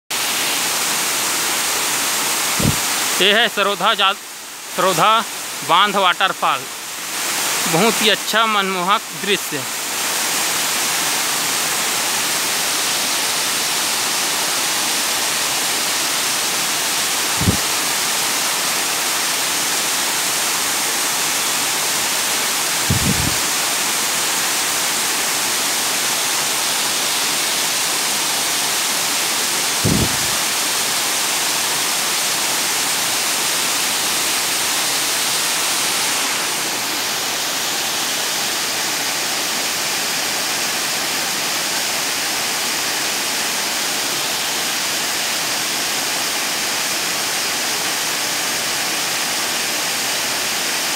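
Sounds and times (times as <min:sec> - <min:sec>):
waterfall rushing: 0:00.1 - 0:50.9
low thumps: 0:22.9 - 0:23.4.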